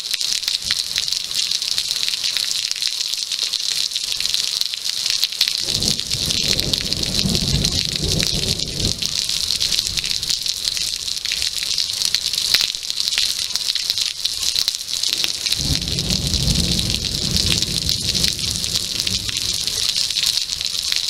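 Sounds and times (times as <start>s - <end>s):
heavy rain pouring: 0.0s - 21.0s
low thunder rumble: 5.6s - 11.5s, 15.1s - 21.0s.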